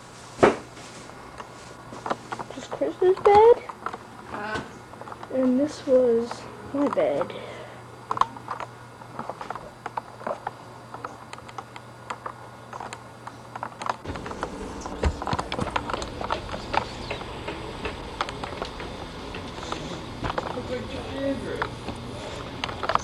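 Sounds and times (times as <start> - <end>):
footsteps: 14.0 - 23.0.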